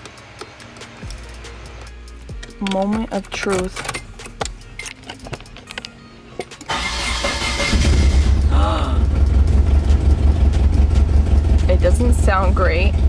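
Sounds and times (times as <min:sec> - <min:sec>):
starter motor cranking: 0:06.6 - 0:11.6
car engine running: 0:06.7 - 0:13.0.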